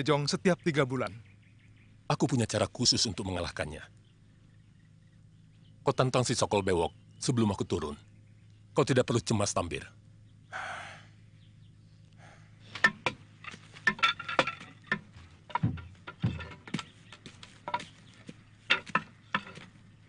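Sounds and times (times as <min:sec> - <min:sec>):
faint low hum: 0:00.0 - 0:20.0
wooden posts knocking and clattering: 0:12.6 - 0:20.0.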